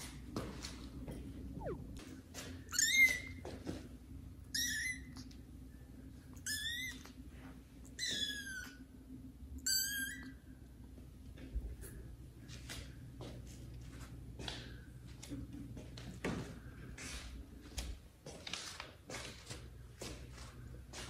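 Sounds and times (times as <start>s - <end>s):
kitten meowing: 1.6s - 2.0s, 2.7s - 3.3s, 6.4s - 7.1s, 9.6s - 10.3s.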